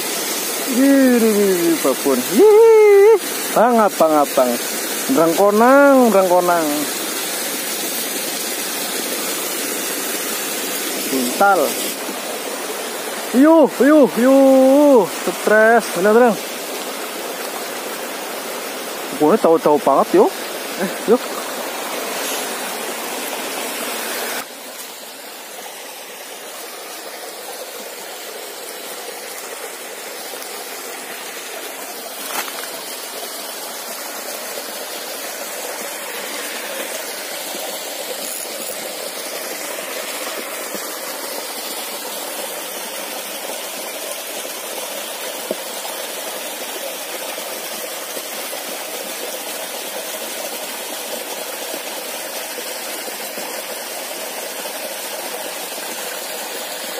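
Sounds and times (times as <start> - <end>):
water rushing over rocks: 0.0 - 56.9.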